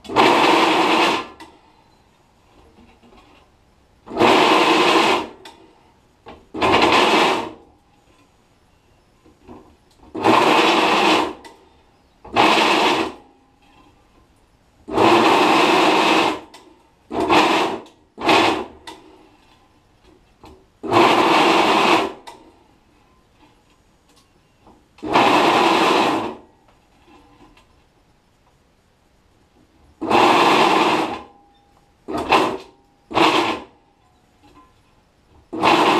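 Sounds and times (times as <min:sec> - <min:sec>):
drill press cutting metal: 0:30.0 - 0:31.3, 0:32.1 - 0:33.7, 0:35.6 - 0:35.9.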